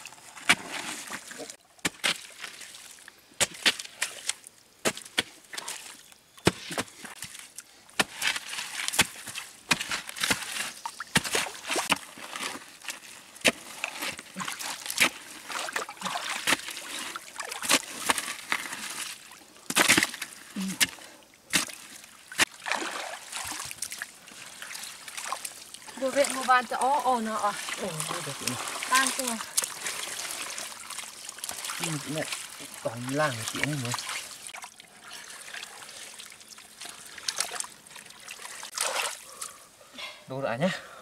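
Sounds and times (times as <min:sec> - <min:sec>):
muddy water sloshing: 0:00.0 - 0:39.6
pole knocking and scraping mud: 0:00.1 - 0:02.6, 0:03.4 - 0:05.8, 0:06.4 - 0:21.8.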